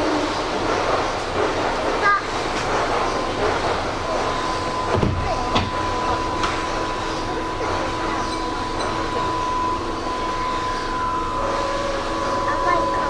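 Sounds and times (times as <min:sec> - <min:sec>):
rail clicks: 0:00.0 - 0:13.0
steady whine: 0:00.0 - 0:13.0
train wheels rumbling: 0:00.0 - 0:13.0
low steady tone: 0:04.2 - 0:13.0.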